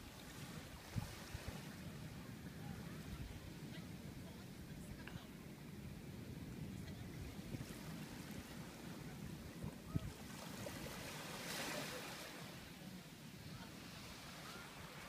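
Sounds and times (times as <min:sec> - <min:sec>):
wind noise on microphone: 0:00.0 - 0:11.5
faint surf: 0:00.0 - 0:15.0.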